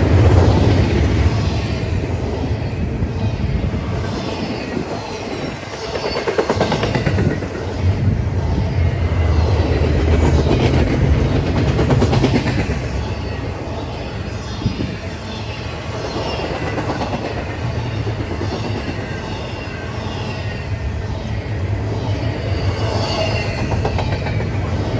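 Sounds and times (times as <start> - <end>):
freight train wheels rumbling: 0.0 - 24.9
rapid clickety-clack: 5.6 - 7.7, 9.9 - 13.0, 16.0 - 19.1, 23.4 - 24.9.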